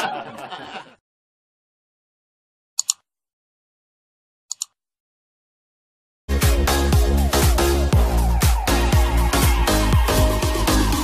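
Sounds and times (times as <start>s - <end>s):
mouse double click effect: 2.8s - 3.0s, 4.5s - 4.8s
electronic dance music: 6.3s - 11.0s.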